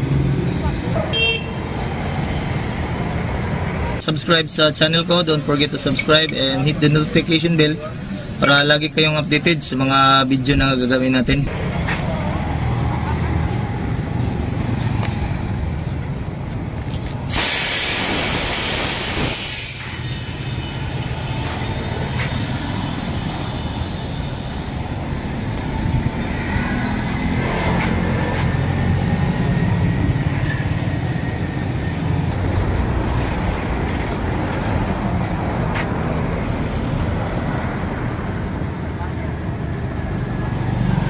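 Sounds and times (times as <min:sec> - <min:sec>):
compressed air hissing: 0:17.3 - 0:25.7
low vehicle rumble: 0:18.0 - 0:41.0.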